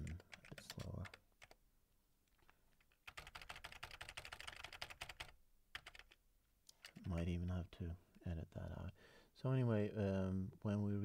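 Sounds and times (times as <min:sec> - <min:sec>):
computer keyboard typing: 0:00.0 - 0:01.6, 0:02.4 - 0:07.2.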